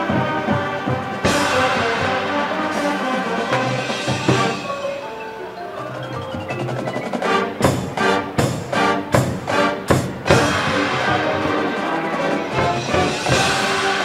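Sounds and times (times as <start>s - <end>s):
loud accented band hits: 0.0s - 5.2s, 6.1s - 14.0s
marching band music: 0.0s - 14.0s
marimbas and mallet percussion: 3.7s - 9.3s.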